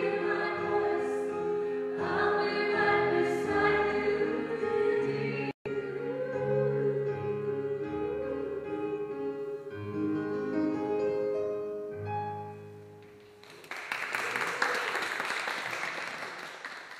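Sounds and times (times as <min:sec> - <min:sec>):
piano chords: 0:00.0 - 0:13.5
audience applause: 0:13.2 - 0:16.9.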